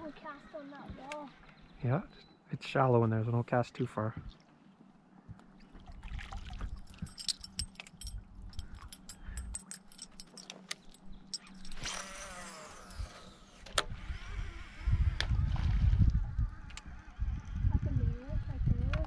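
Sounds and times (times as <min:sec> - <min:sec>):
fishing reel spool whirring: 0:11.2 - 0:18.5.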